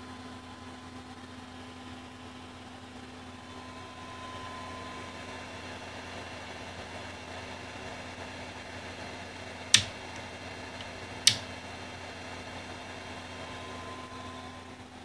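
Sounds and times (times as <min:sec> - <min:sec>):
steady hum: 0:03.2 - 0:07.2, 0:09.2 - 0:15.0
toggle switch clicks: 0:09.7 - 0:11.5.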